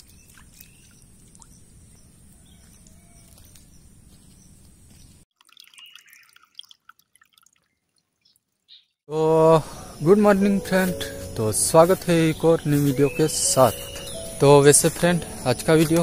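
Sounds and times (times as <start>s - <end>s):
water drips and plinks: 0.0s - 1.7s, 5.3s - 8.8s.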